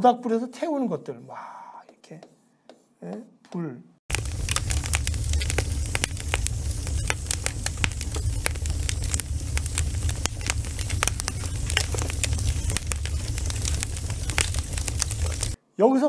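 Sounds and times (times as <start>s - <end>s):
logs crackling and popping: 4.1s - 15.6s
low rumble of flames: 4.1s - 15.6s.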